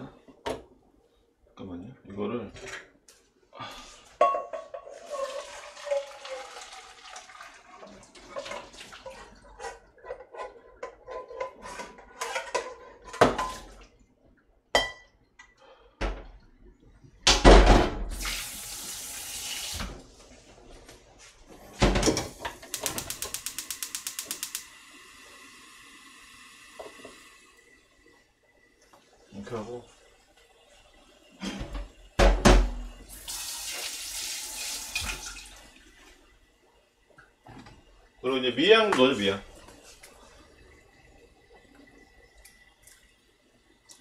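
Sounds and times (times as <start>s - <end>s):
pots and utensils clattering: 4.1s - 13.8s, 21.7s - 23.5s, 31.4s - 33.0s
faint steady hiss: 18.1s - 44.0s
tap running: 21.8s - 24.7s, 26.7s - 27.3s
rapid clicks: 22.7s - 24.6s.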